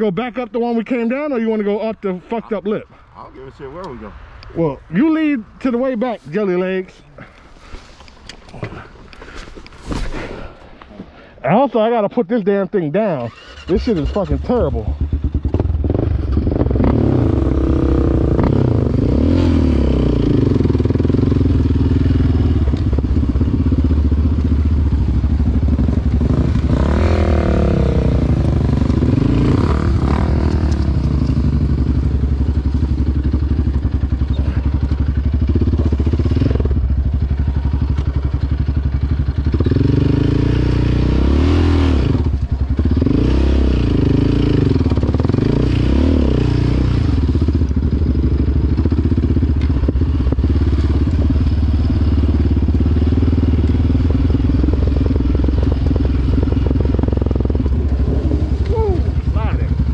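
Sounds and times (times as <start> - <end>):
atv engine revving: 13.0 - 59.9.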